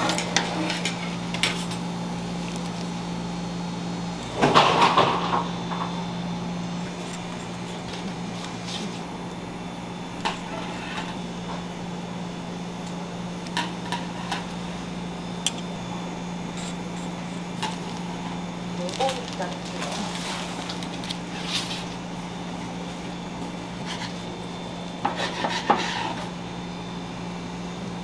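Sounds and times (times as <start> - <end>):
kitchen machinery humming: 0.0 - 28.0.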